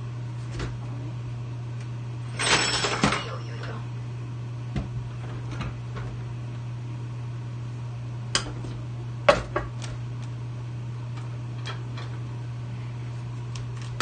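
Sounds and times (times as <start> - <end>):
kitchen items clattering: 2.3 - 3.6.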